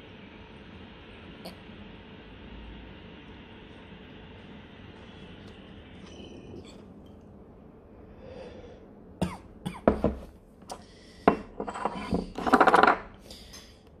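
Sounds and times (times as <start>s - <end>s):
person coughing: 9.2s - 10.1s.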